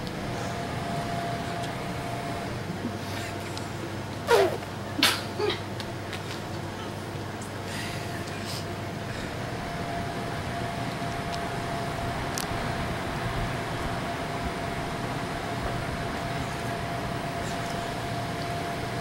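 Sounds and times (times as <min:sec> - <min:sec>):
faint constant whine: 0:00.0 - 0:19.0
mechanical hum and rush: 0:00.0 - 0:19.0.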